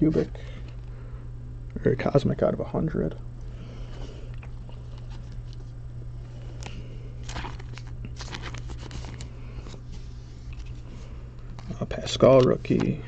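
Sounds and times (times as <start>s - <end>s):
steady low hum: 0.0s - 13.0s
trading cards flipped by hand: 6.6s - 9.8s, 11.4s - 13.0s.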